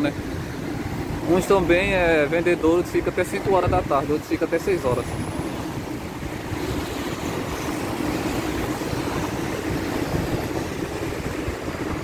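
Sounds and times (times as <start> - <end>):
wind on microphone: 4.8 - 12.0.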